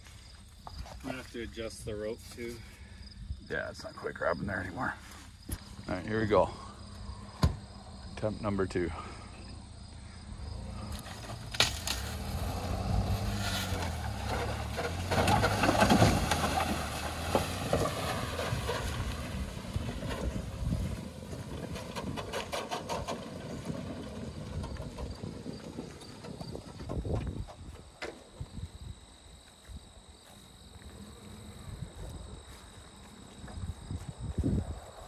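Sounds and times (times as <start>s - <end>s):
pickup truck engine revving: 10.3s - 26.5s.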